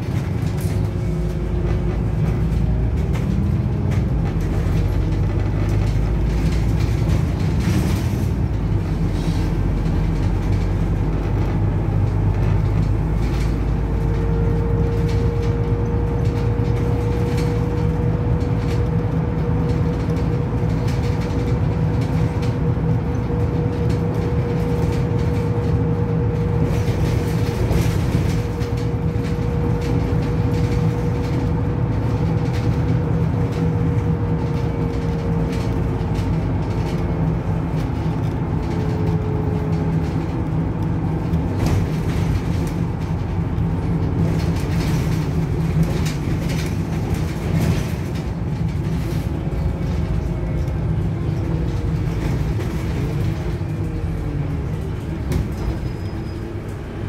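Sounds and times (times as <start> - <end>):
bus engine drone: 0.0 - 57.0
road noise: 0.0 - 57.0.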